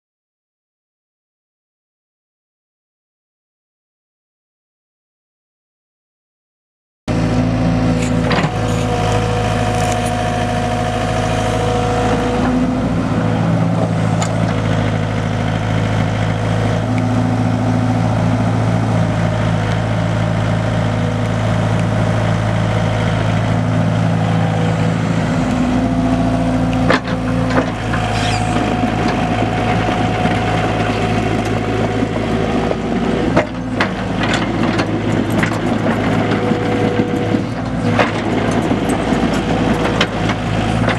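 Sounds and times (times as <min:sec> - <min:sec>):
excavator diesel engine running: 0:07.1 - 0:40.9
hydraulic whine: 0:23.6 - 0:34.4.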